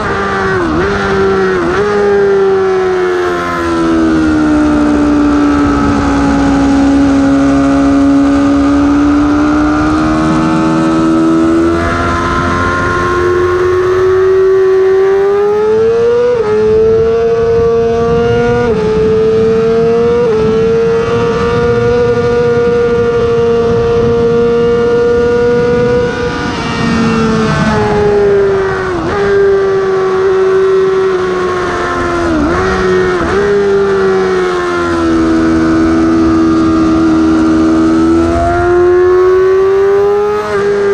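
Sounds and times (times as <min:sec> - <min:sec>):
motorcycle engine accelerating: 0:00.0 - 0:40.9.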